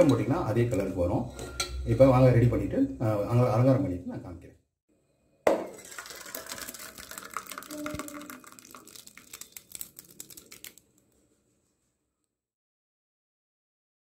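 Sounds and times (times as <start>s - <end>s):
steel spoon scraping metal bowl: 0.0s - 2.0s.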